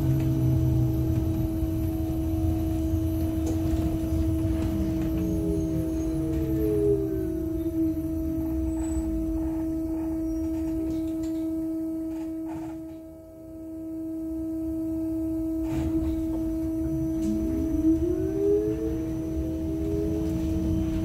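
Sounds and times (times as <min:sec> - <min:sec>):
low rumble: 0:00.0 - 0:10.6, 0:16.1 - 0:21.0
traction motor whine: 0:00.0 - 0:21.0
two-tone electrical hum: 0:00.0 - 0:21.0.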